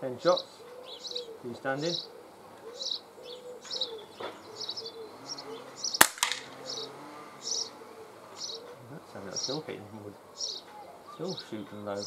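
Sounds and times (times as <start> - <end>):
small birds chirping: 0.0 - 12.0
pellet hitting wooden frame: 6.0 - 6.5
pellet pistol shot: 6.0 - 6.6.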